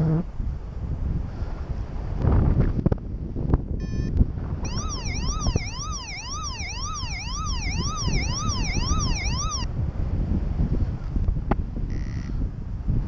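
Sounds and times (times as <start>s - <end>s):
wind noise on microphone: 0.0s - 13.0s
electronic sweeping alarm tone: 3.8s - 9.7s.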